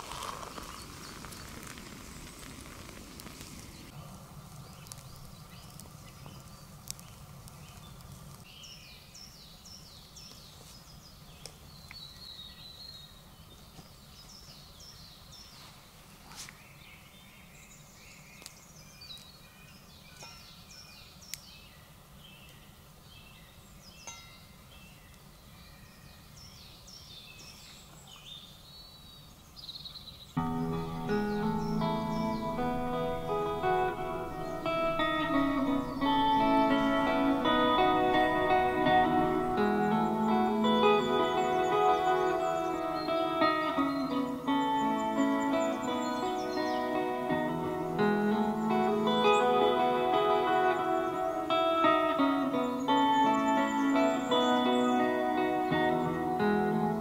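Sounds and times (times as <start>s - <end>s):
water pouring into mug: 0.0s - 2.4s
low outdoor background: 0.0s - 57.0s
woodland birds singing: 0.0s - 57.0s
sharp snaps: 30.4s - 42.4s.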